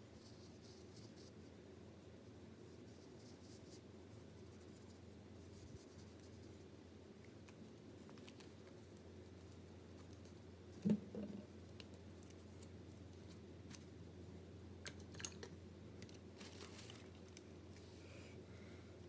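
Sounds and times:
soft rustle: 0.0s - 10.8s, 11.5s - 14.4s, 16.2s - 19.0s.

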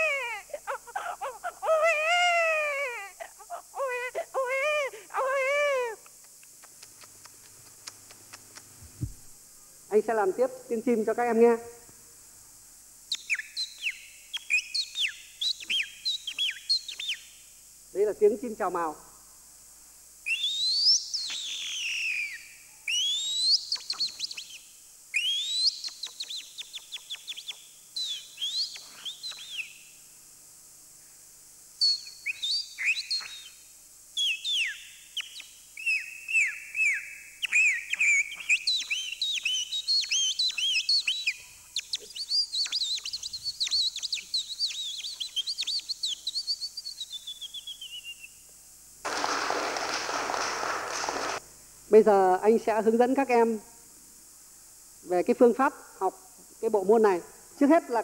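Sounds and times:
man whistling birdcalls: 13.1s - 17.2s, 20.3s - 29.8s, 31.8s - 33.6s, 34.2s - 48.4s.

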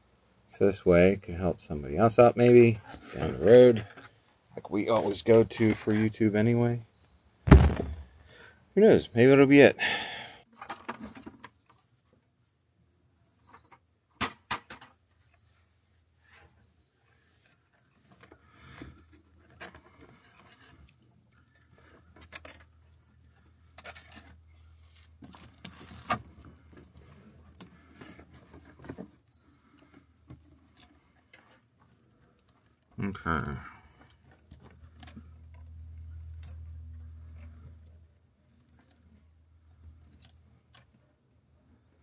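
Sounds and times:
insects chirring: 0.0s - 42.0s.

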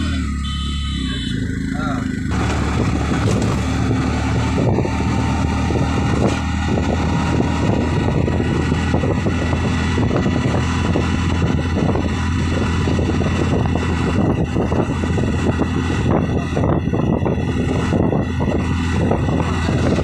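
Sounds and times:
vehicle engine and road noise: 0.0s - 20.0s
wind buffeting microphone: 2.2s - 20.0s.

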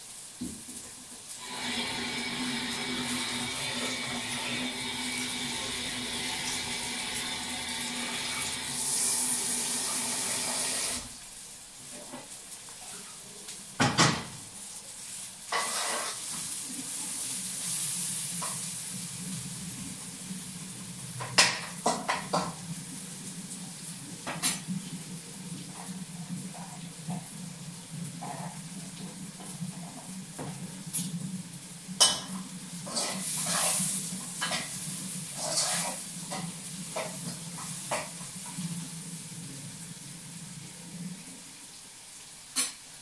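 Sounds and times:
metal pans and utensils clinking: 15.5s - 16.6s, 21.2s - 22.6s, 32.0s - 38.7s.

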